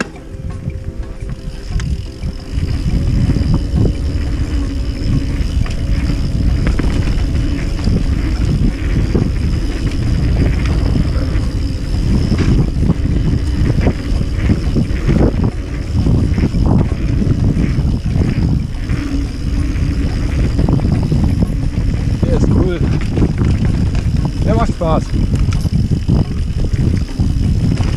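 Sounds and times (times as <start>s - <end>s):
bike knocks and rattles: 0.0s - 27.9s
tyres rolling on dirt: 0.0s - 27.9s
wind buffeting microphone: 0.0s - 27.9s.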